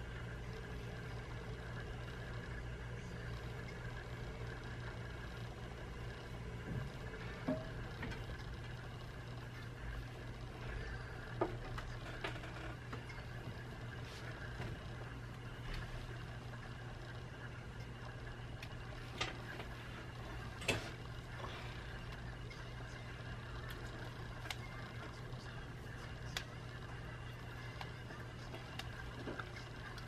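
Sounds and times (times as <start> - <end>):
low room hum: 0.0 - 30.0.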